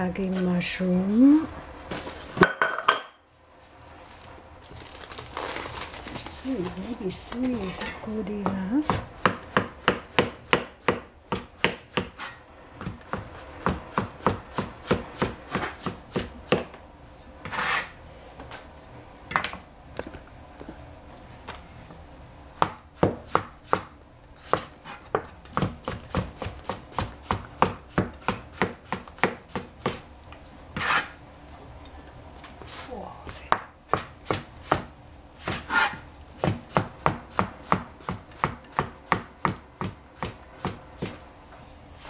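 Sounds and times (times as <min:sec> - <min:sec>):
knife chopping on cutting board: 0:08.4 - 0:16.8, 0:22.6 - 0:30.0, 0:30.8 - 0:31.2, 0:33.5 - 0:41.2.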